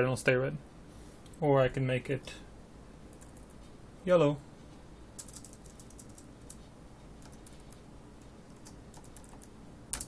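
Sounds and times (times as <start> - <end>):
typing on keyboard: 3.1 - 3.6, 5.2 - 6.6, 7.2 - 7.8, 8.5 - 10.0.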